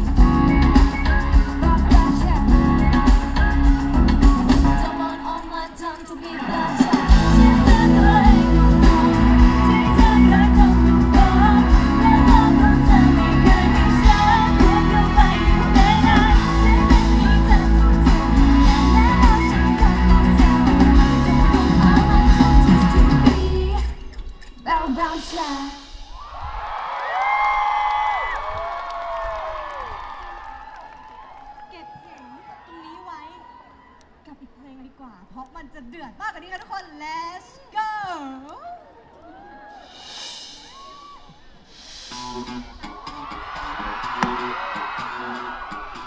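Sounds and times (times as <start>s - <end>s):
pop song with sung vocals: 0.0s - 26.2s.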